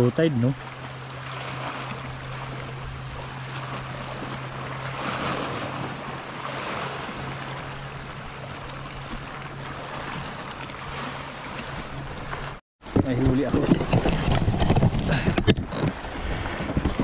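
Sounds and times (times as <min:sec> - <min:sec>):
steady low hum: 0:00.0 - 0:14.0
surf washing on shore: 0:00.0 - 0:17.0
wind noise on microphone: 0:12.8 - 0:17.0.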